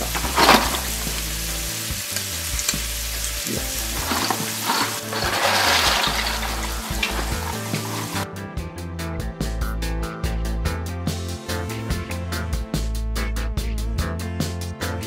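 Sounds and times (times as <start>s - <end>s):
music with a steady beat: 0.0s - 4.7s, 6.4s - 15.0s
pasta splashing into water: 0.0s - 8.2s
water boiling and bubbling: 0.0s - 8.2s.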